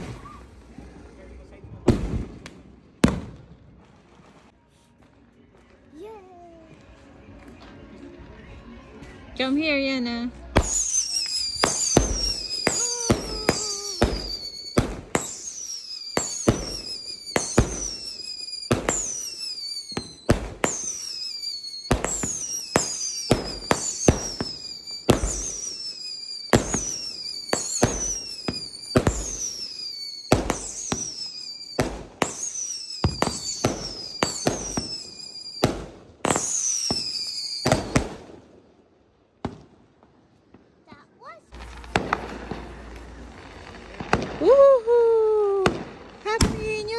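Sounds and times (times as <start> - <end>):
falling firework whistle: 0.0 - 0.6, 10.6 - 38.1, 41.6 - 46.1
firework bangs: 0.0 - 4.4, 10.5 - 38.6, 39.4 - 46.9.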